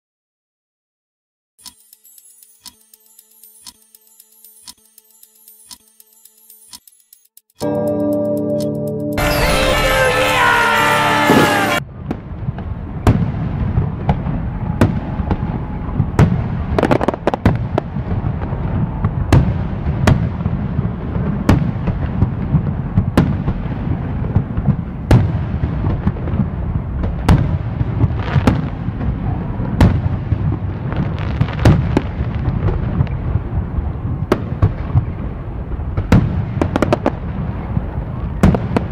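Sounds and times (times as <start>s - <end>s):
sharp firework cracks and bangs: 9.3s - 38.9s
low rumble of firework bursts: 11.9s - 38.9s.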